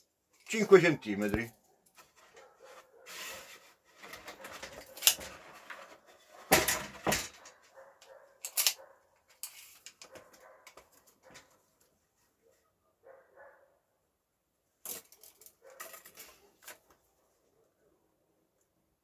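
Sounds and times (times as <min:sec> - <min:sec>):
sharp knocks and scrapes: 0:01.3 - 0:07.7
hand and pencil rubbing on wood: 0:02.0 - 0:04.5.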